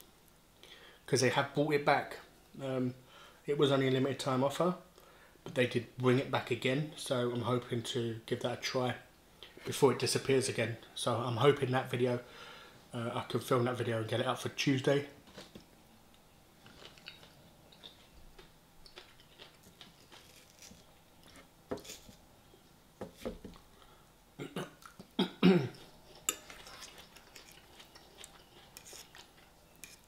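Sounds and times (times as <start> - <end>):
man chewing: 16.6 - 22.1, 24.8 - 30.0
short voiced throat sound: 24.4 - 25.8.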